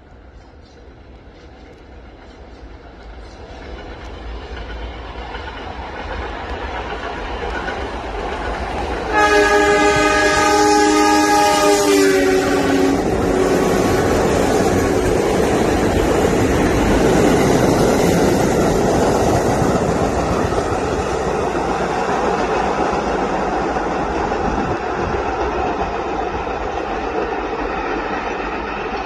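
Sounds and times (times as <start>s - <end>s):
train rushing past: 0.0s - 29.0s
train air horn chord: 9.1s - 13.9s.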